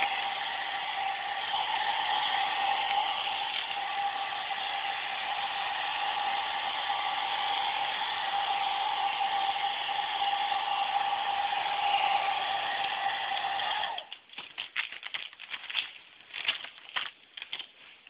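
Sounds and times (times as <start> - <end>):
hair dryer running: 0.0 - 14.1.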